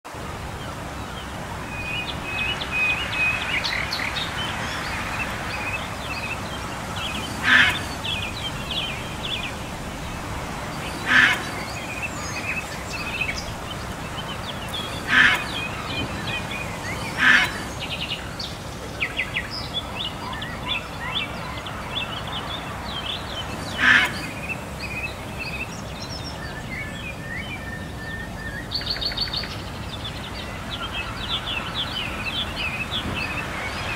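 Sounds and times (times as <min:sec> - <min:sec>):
birds chirping and trilling: 0:00.1 - 0:33.9
loud short bird calls: 0:07.2 - 0:09.2, 0:10.8 - 0:12.4, 0:14.8 - 0:16.4, 0:23.7 - 0:24.6.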